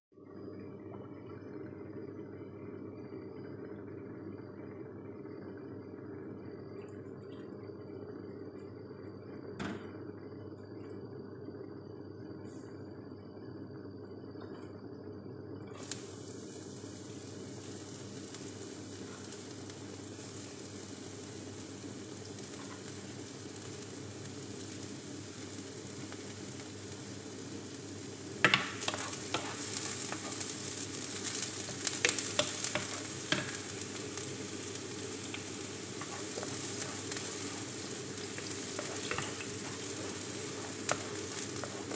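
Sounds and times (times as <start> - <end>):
steady low hum: 0.1 - 41.9
onion sizzling in hot oil: 15.7 - 41.9
wooden spoon scraping a pan: 28.5 - 41.9.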